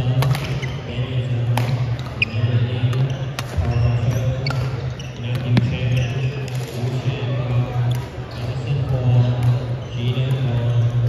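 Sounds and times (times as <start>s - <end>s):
background chatter: 0.0s - 11.0s
rackets striking shuttlecock: 0.2s - 0.6s, 1.5s - 3.7s.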